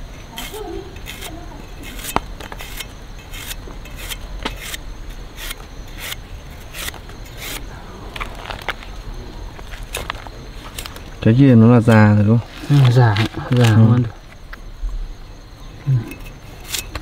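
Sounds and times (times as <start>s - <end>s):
knife scraping palm heart: 0.4s - 8.8s, 16.6s - 17.0s.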